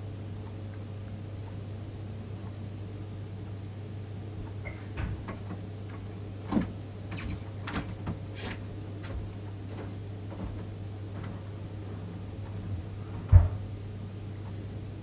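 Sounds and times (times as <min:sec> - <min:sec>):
steady low hum: 0:00.0 - 0:15.0
thud: 0:13.3 - 0:13.6.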